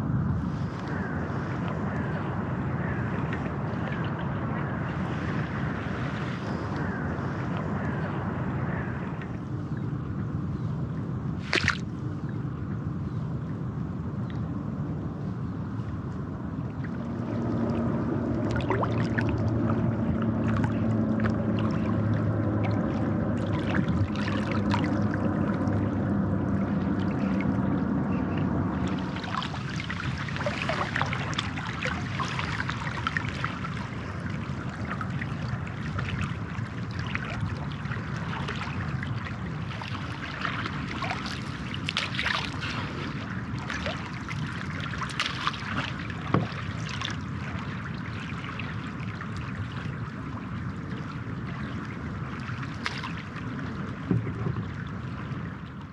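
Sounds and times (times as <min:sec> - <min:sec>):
steady low hum: 0:00.0 - 0:55.9
river water trickling: 0:00.4 - 0:55.9
small water splashes: 0:11.4 - 0:11.9, 0:16.6 - 0:55.9.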